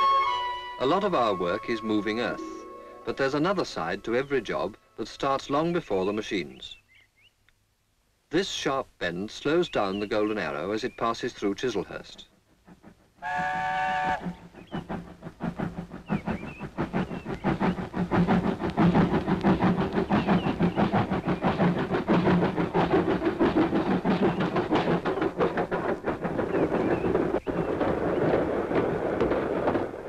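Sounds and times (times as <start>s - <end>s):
steam locomotive exhaust beats: 0.0s - 6.4s, 9.9s - 30.0s
train wheels clattering on rails: 0.0s - 6.6s, 9.5s - 30.0s.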